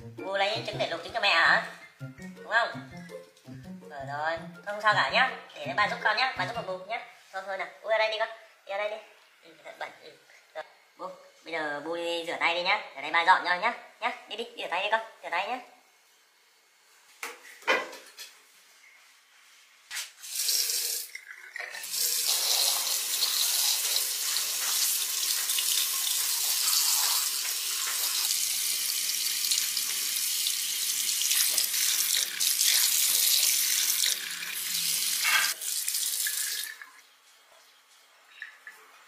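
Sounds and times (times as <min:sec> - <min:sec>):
tap water running into sink: 0:20.3 - 0:37.1.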